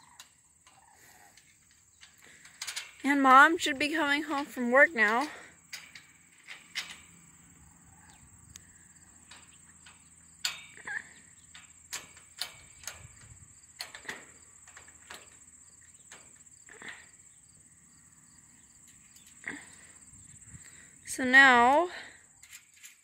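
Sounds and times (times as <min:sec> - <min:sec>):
high-pitched insect trill: 0:04.8 - 0:21.2.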